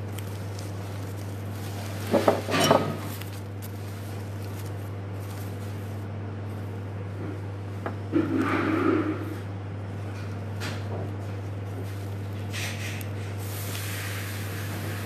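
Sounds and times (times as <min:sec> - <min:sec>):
rustling: 0:00.0 - 0:06.8, 0:10.0 - 0:15.0
steady low hum: 0:00.0 - 0:15.0
objects clattering on tabletop: 0:02.1 - 0:03.1.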